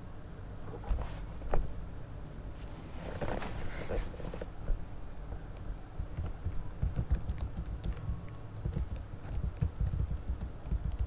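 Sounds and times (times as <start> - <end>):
keyboard typing: 5.6 - 11.0.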